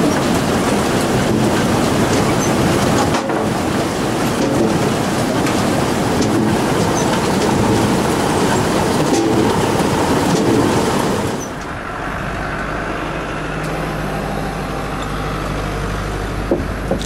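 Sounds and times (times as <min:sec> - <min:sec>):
potato harvester rattling: 0:00.0 - 0:11.8.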